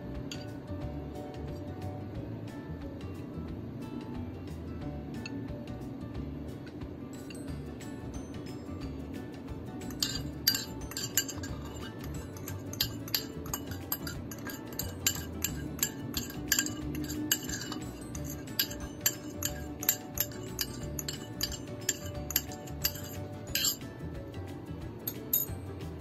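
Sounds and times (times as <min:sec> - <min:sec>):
quiet background music: 0:00.0 - 0:26.0
utensil clinking against bowl: 0:09.8 - 0:23.9, 0:25.1 - 0:25.5.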